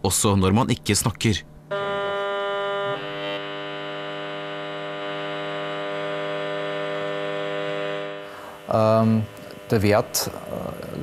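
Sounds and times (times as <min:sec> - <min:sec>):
steady electronic buzz: 0:01.4 - 0:11.0.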